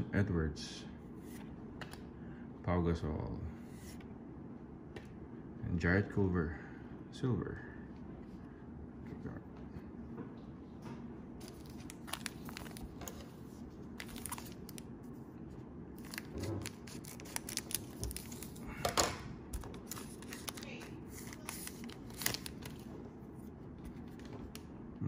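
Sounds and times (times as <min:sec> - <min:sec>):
crinkling plastic and card rustling: 0:10.8 - 0:24.7.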